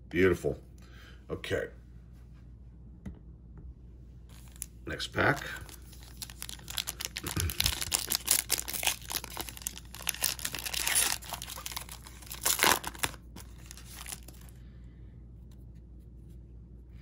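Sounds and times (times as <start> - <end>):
foil wrapper tearing and crinkling: 4.3 - 14.5.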